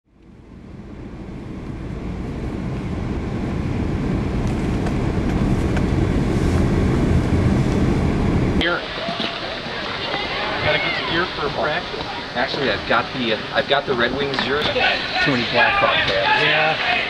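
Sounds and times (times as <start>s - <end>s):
wind buffeting microphone: 0.4s - 13.0s.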